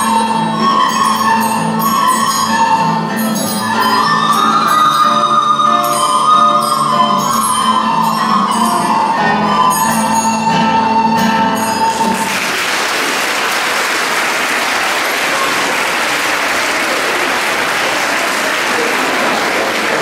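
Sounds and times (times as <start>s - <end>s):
recorder ensemble playing: 0.0s - 12.6s
audience applauding: 11.7s - 20.0s.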